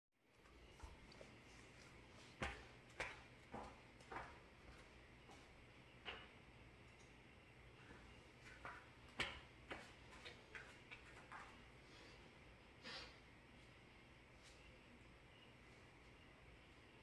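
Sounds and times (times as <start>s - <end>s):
barefoot footsteps on rubber floor: 0.5s - 6.3s, 7.8s - 11.6s.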